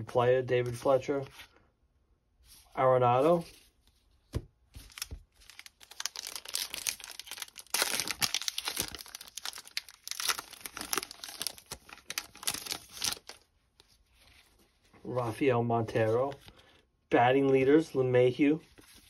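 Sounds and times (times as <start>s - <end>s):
card pack wrapper tearing and crinkling: 4.8s - 13.5s.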